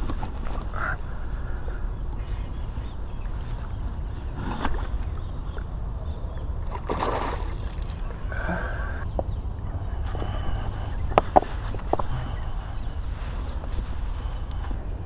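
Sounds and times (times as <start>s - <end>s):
wind rumble on microphone: 0.0s - 15.0s
fish splashing in water: 6.6s - 8.5s.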